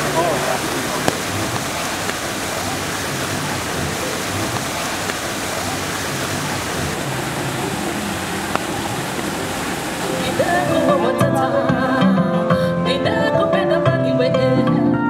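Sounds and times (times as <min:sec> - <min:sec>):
waterfall splashing into pond: 0:00.0 - 0:11.1.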